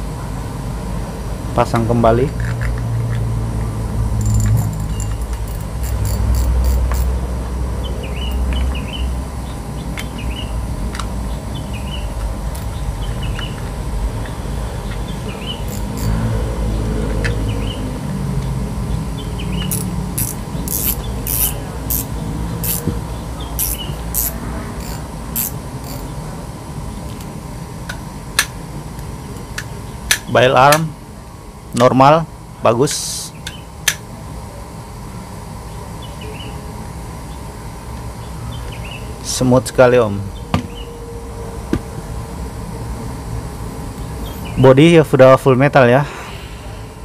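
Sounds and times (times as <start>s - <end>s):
steady hum and low rumble: 0.0s - 47.0s
fishing reel clicks: 4.2s - 7.1s, 15.7s - 16.2s, 19.7s - 22.9s, 23.6s - 26.1s
fishing reel handling: 19.7s - 22.9s, 23.6s - 26.1s.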